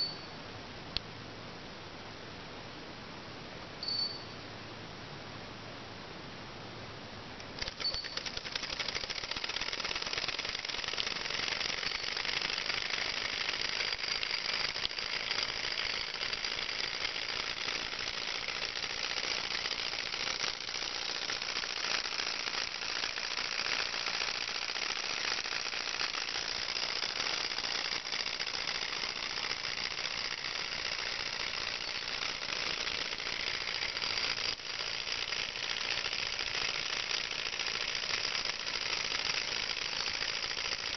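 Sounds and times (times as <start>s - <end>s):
model engine rapid mechanical clatter: 7.4s - 40.9s.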